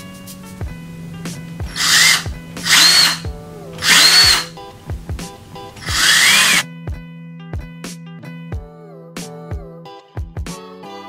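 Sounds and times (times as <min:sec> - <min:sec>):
background music with steady beat: 0:00.0 - 0:11.0
cordless drill whining: 0:01.6 - 0:06.6.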